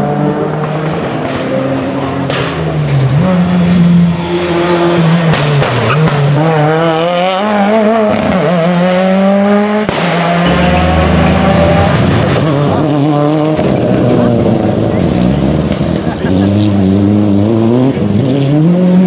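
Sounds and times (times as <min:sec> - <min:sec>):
rally car engine revving: 0:00.0 - 0:19.0.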